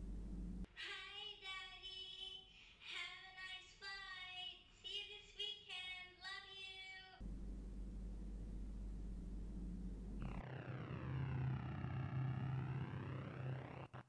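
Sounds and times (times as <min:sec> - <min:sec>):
child singing: 0:00.8 - 0:07.2.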